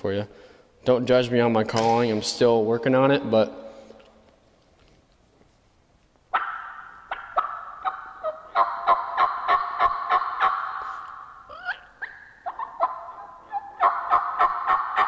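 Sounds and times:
turkey call yelps: 6.3 - 15.0.

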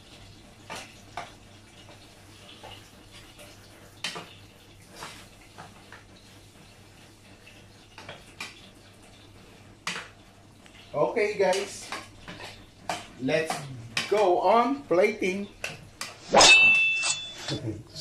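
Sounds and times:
metal spoon scraping a pot: 16.3 - 17.6.

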